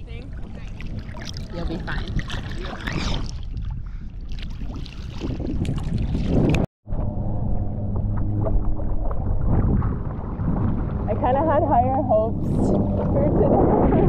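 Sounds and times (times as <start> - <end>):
water sloshing: 0.0 - 6.7, 7.8 - 14.0
wind rumbling on microphone: 0.0 - 14.0
low steady hum: 6.9 - 14.0.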